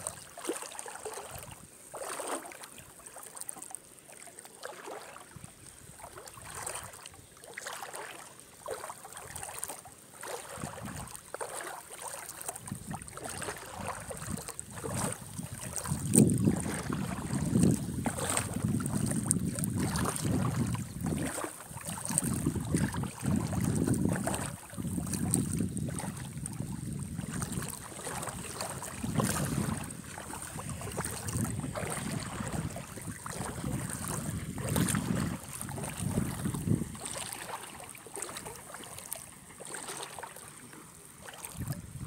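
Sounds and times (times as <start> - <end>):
sea water rippling at shore: 0.0 - 42.0
wind buffeting microphone: 10.6 - 11.2, 12.6 - 37.4, 41.6 - 42.0.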